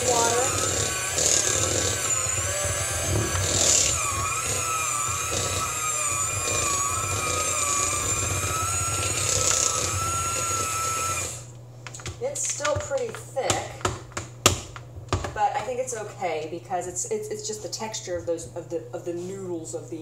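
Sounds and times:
electric mixer motor whine: 0.0 - 11.5.

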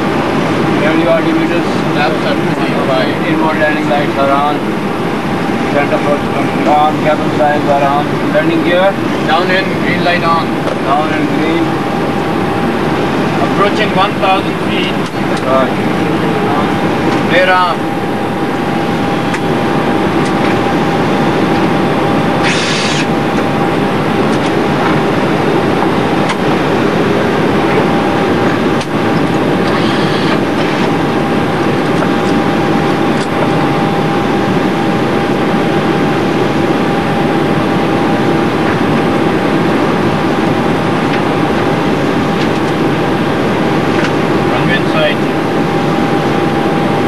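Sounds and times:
airflow and engine roar: 0.0 - 47.0
thin steady whine: 0.0 - 47.0
short bursts of hiss: 22.4 - 23.1.

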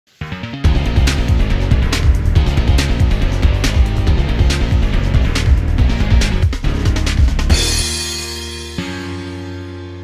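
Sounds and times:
rock band instrumental music: 0.2 - 10.0.

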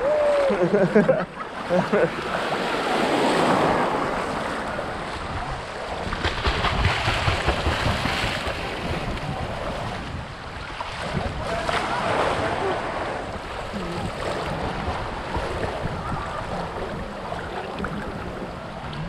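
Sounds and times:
small waves washing: 0.0 - 19.0
wind buffeting microphone: 2.9 - 19.0
swimmer's kicks splashing: 6.0 - 9.7.

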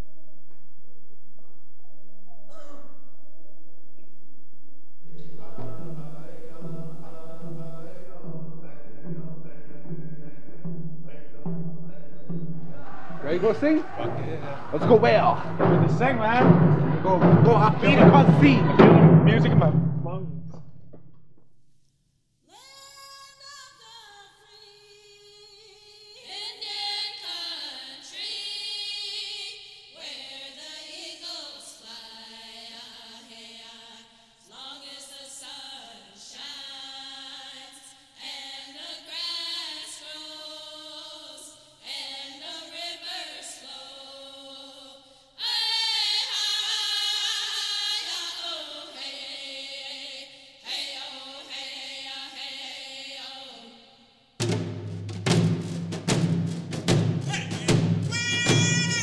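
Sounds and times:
group singing in harmony: 5.0 - 20.6, 26.2 - 53.8.

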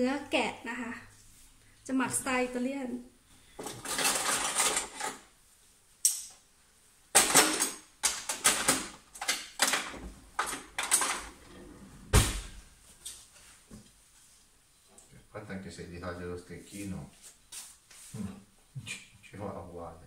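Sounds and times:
metal kitchen utensils clattering: 3.6 - 5.3, 7.2 - 11.6.

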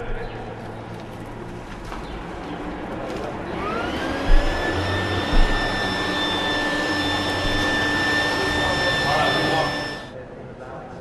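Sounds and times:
vacuum cleaner motor whine: 3.1 - 10.2
dull low thumps: 4.1 - 6.6.

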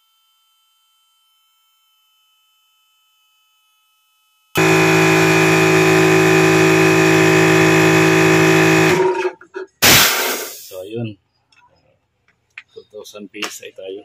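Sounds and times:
airbrush compressor humming: 4.6 - 10.6
loud burst of noise: 4.6 - 10.8.

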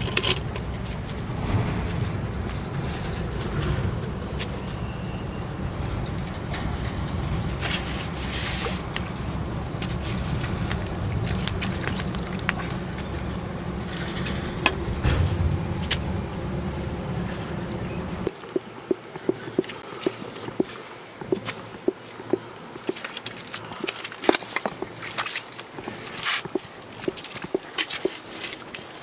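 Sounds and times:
low steady rumble: 0.0 - 18.3
insects chirring: 0.0 - 29.0.

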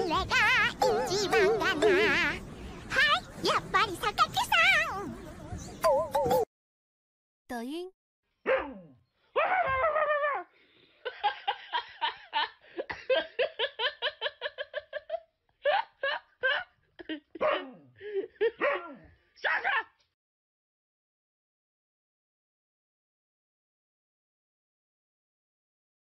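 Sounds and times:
dog barking and yipping: 18.6 - 19.0.

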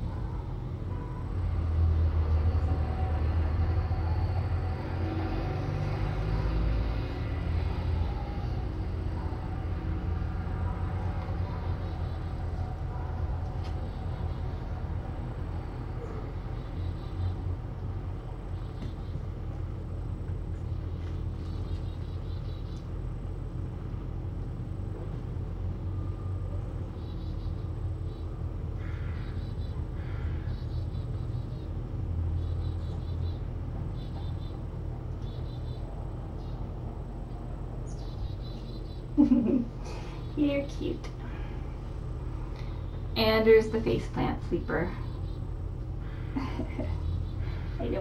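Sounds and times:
low room hum and rumble: 0.0 - 48.0.

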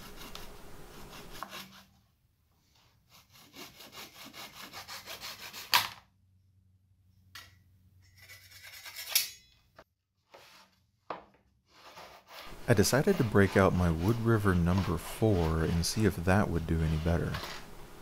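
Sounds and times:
hand saw cutting wood: 0.0 - 1.9, 3.1 - 5.9, 11.8 - 17.7
tools scraping and knocking: 7.4 - 12.6.

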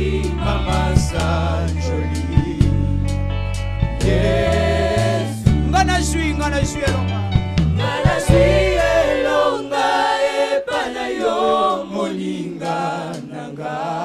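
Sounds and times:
gospel choir singing: 0.0 - 5.7, 7.0 - 14.0
low instrumental notes: 0.0 - 10.0.

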